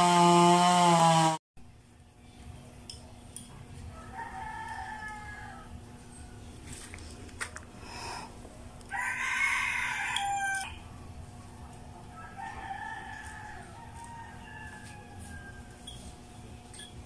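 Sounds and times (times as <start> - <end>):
rooster crowing: 3.9 - 5.9, 8.9 - 10.8, 12.0 - 16.0.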